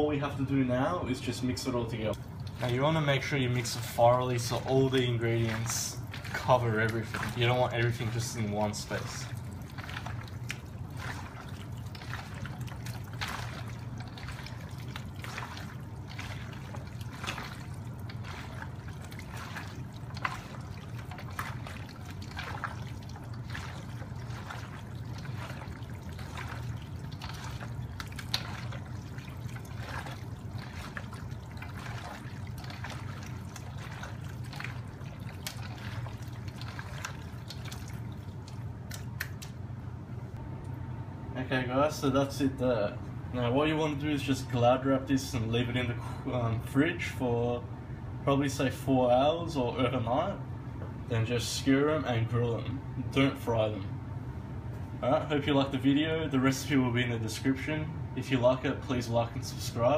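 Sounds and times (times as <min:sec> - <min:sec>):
low hum: 0:00.0 - 0:44.6
hands squelching food in bowl: 0:01.2 - 0:39.7.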